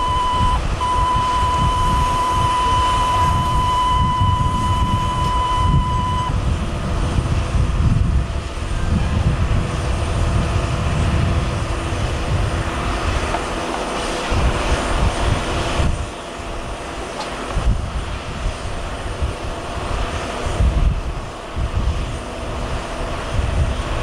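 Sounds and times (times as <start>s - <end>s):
high electronic tone: 0.0s - 6.3s
airliner and tow tug rumble: 0.0s - 24.0s.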